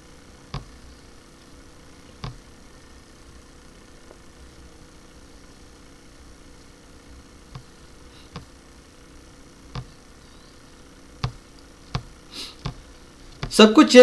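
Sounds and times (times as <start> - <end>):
faint steady hum: 0.0 - 14.0
computer mouse clicking: 9.7 - 10.0, 11.2 - 13.5
brief hiss: 12.3 - 12.6.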